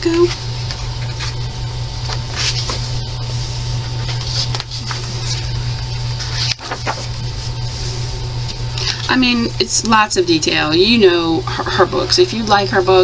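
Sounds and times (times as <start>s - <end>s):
low electrical hum and hiss: 0.0s - 13.0s
paper rustling page turn: 0.2s - 1.4s, 2.0s - 8.6s.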